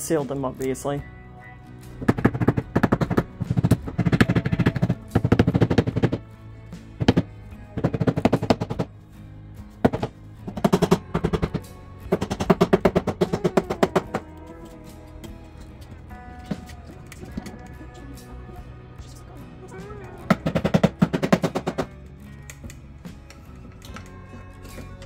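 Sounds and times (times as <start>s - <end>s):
background music: 0.0s - 25.0s
hammer tapping wooden knob: 20.3s - 21.9s.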